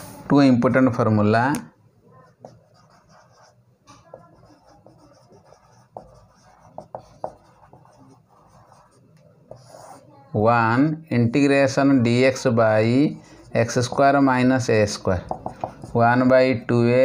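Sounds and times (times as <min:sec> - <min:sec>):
marker pen scratching on whiteboard: 0:02.3 - 0:10.0, 0:13.4 - 0:16.2.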